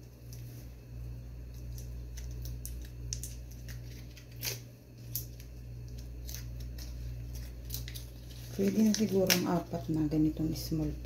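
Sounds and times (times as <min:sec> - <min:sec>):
steady low hum: 0:00.0 - 0:11.0
foil wrapper crinkling: 0:01.5 - 0:10.3.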